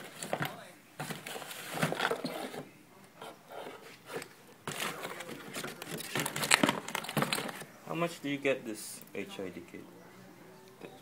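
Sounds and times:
items scraping cardboard box: 0.0s - 2.7s, 3.5s - 7.7s
packaging rustling: 0.0s - 2.7s, 3.9s - 7.7s.

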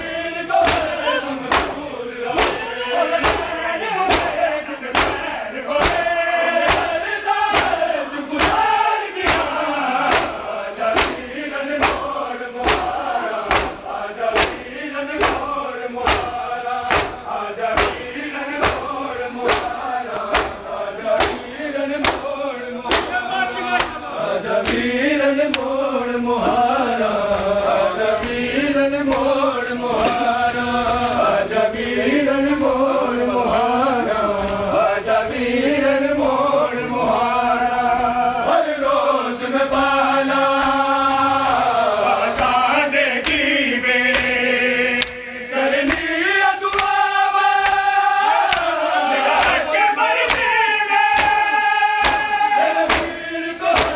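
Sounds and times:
men chanting a lament: 0.0s - 53.9s
hands slapping bare chests: 0.6s - 1.8s, 2.4s - 2.6s, 3.2s - 3.5s, 4.1s - 5.2s, 5.8s - 7.8s, 8.4s - 10.4s, 11.0s - 13.8s, 14.4s - 22.3s, 22.9s - 23.2s, 43.2s - 43.5s, 45.8s - 46.1s, 46.7s - 47.0s, 47.6s - 49.6s, 50.2s - 50.5s, 51.2s - 51.4s, 52.0s - 53.9s.

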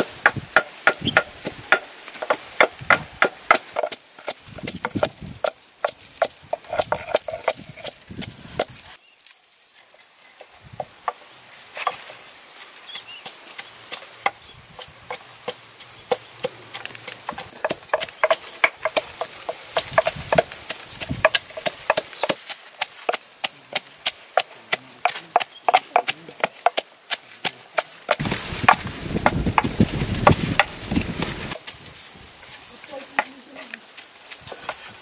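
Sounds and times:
cleaver chopping on wooden block: 0.0s - 8.0s
pestle pounding in wooden mortar: 0.0s - 8.8s, 13.2s - 31.6s
wind buffeting microphone: 4.5s - 5.4s, 28.2s - 31.6s.

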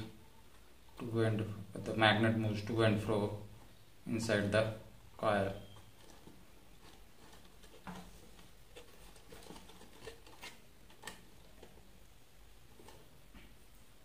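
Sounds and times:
hands handling coil and wires: 5.6s - 13.6s.

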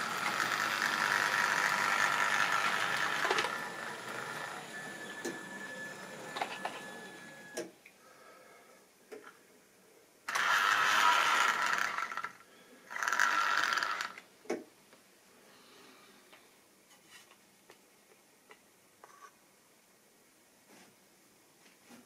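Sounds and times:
small electric motor whining: 0.0s - 7.6s, 10.3s - 14.2s.

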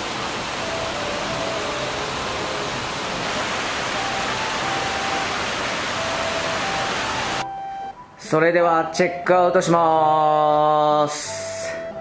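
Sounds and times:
stream water rushing over rocks: 0.0s - 7.4s
faint melody: 0.1s - 12.0s.

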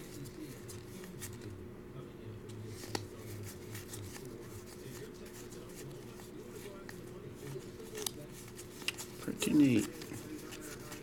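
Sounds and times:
trading cards flipped by hand: 2.7s - 6.2s, 6.8s - 11.0s.

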